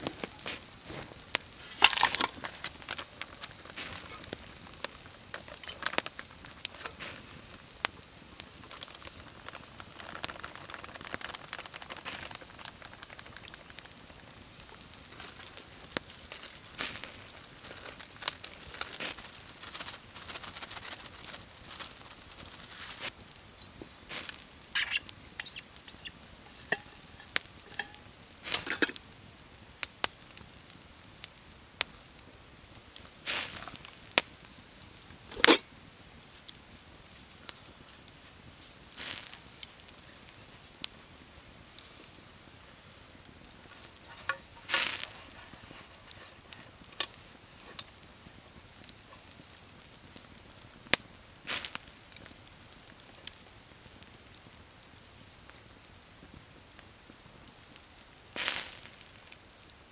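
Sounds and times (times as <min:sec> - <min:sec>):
faint hiss: 0:00.0 - 0:59.9
paper bag crinkling: 0:08.7 - 0:13.8, 0:16.8 - 0:23.1.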